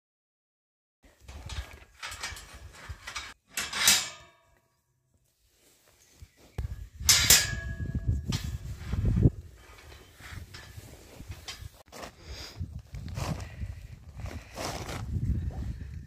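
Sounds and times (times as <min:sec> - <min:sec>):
rustling and bumping on microphone: 0:05.7 - 0:12.1.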